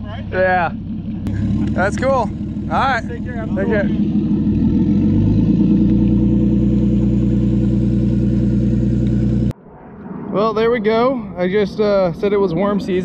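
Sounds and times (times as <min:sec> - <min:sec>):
outboard engine running: 0:00.0 - 0:09.5.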